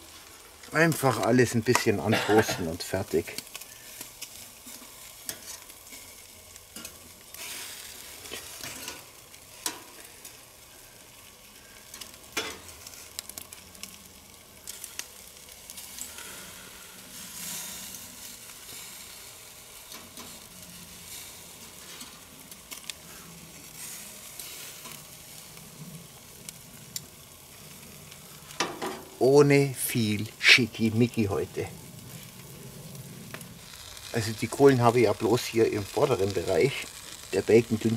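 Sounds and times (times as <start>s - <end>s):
meat sizzling on a grill: 0.0s - 37.9s.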